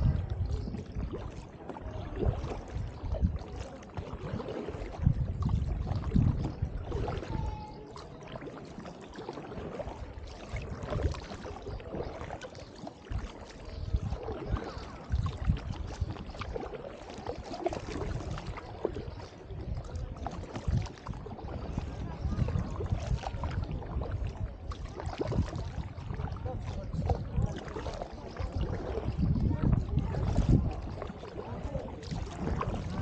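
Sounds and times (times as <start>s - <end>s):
dull low thumps: 0.0s - 1.2s, 4.9s - 7.6s, 28.4s - 33.0s
paddle splashing in water: 0.0s - 33.0s.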